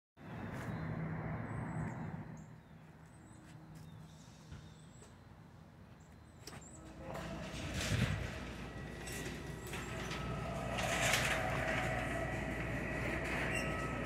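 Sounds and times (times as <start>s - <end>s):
vehicle engine hum: 0.2s - 14.0s.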